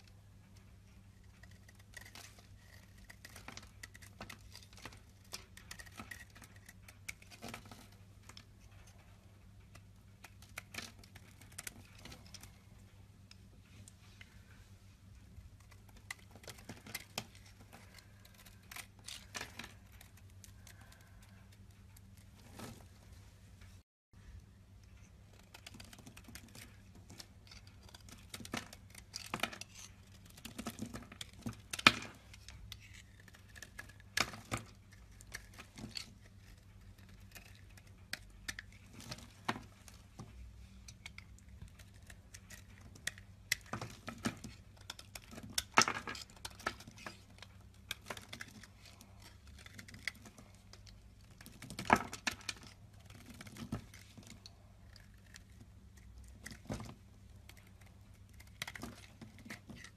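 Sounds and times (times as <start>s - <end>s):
knife blade scraping soap: 1.4s - 8.7s, 25.6s - 39.6s.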